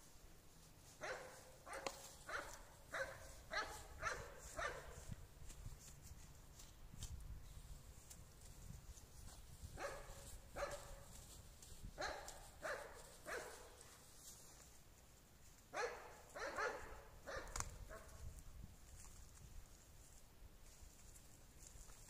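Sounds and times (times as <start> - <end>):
faint dog barking: 1.0 - 5.0, 9.8 - 11.0, 12.0 - 14.0, 15.8 - 18.2.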